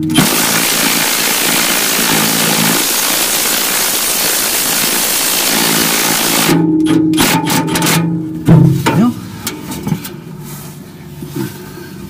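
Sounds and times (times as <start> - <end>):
impact wrench hammering: 5.4 - 9.2.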